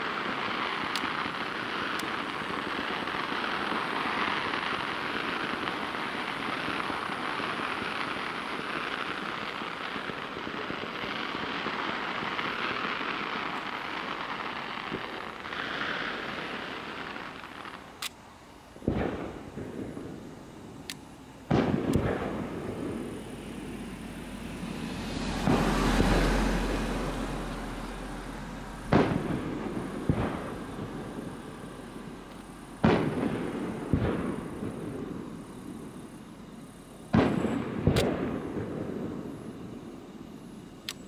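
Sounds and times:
rolling rumble with crackle: 0.0s - 18.2s, 18.8s - 41.0s
fireworks booming: 0.0s - 40.8s.

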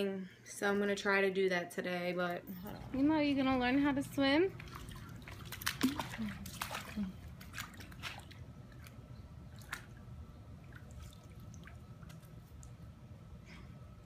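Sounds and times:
water drips and small splashes: 2.6s - 13.1s.

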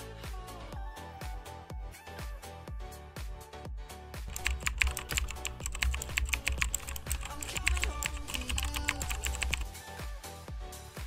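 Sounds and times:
dance music with steady beat: 4.3s - 9.7s
keyboard typing clicks: 4.3s - 9.7s.

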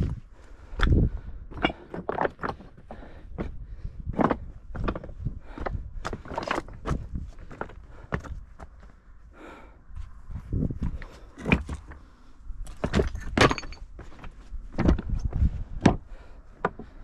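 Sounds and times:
footsteps on clinking stones: 0.8s - 9.0s, 12.6s - 16.0s.

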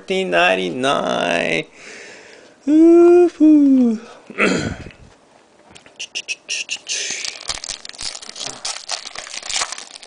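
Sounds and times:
foil pack crinkling: 6.8s - 10.0s.

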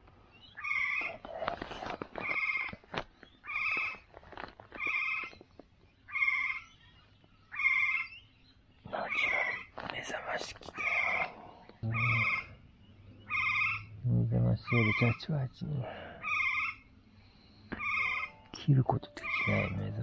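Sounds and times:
animal calling: 0.5s - 2.8s, 6.1s - 6.8s, 7.5s - 8.2s, 10.7s - 17.0s, 17.6s - 20.0s.

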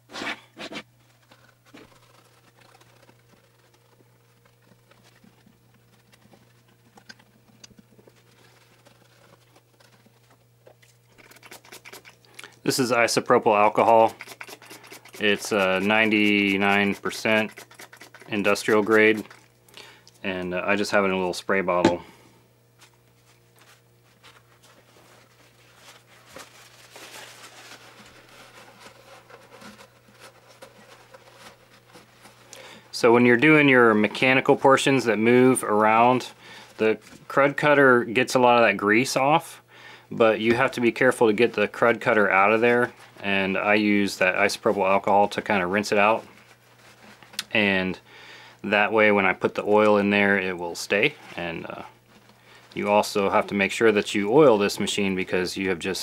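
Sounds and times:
cloth rubbing on metal: 0.0s - 10.6s, 12.8s - 19.4s, 22.9s - 38.5s, 40.4s - 48.0s
steady low hum: 0.0s - 55.1s
cloth rag wiping sewing machine: 13.4s - 19.4s.

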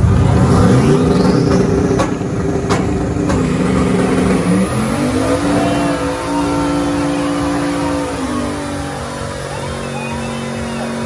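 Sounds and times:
engine revving: 0.0s - 11.0s.

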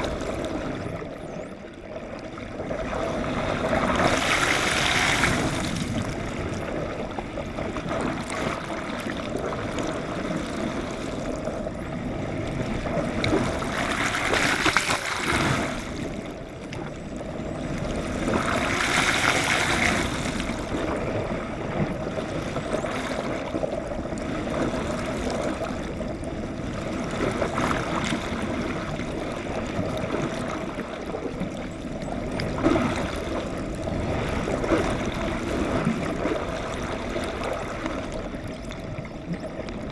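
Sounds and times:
water rushing past underwater: 0.0s - 39.9s
bubbling splash: 3.2s - 6.2s.

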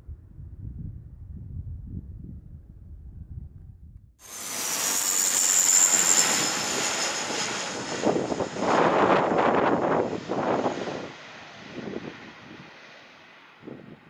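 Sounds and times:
wind rumble on microphone: 0.0s - 4.2s, 6.2s - 12.7s, 13.6s - 14.0s
high engine whine sinking: 4.2s - 10.1s
turboprop airliner rushing: 4.2s - 14.0s.

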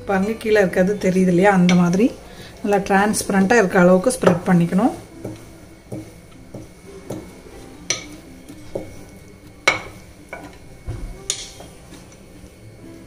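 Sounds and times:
rolling pin rolling dough: 2.8s - 13.0s.

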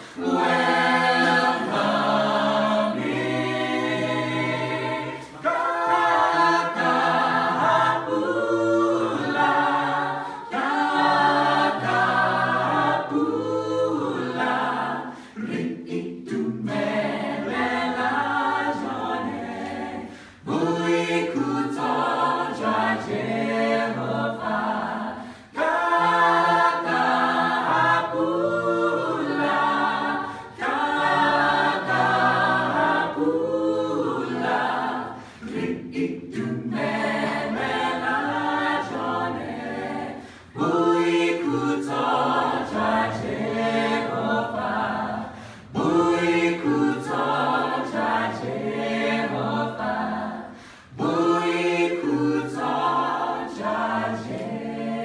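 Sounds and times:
choir singing a cappella: 0.0s - 55.0s.

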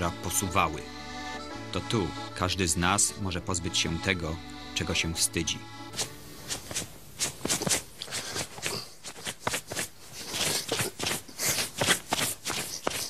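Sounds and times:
clothing and upholstery rustling: 6.0s - 13.0s.

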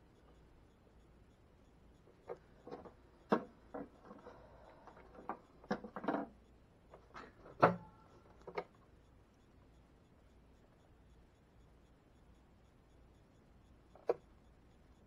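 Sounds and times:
clicks and knocks of hand tools: 2.2s - 6.4s.

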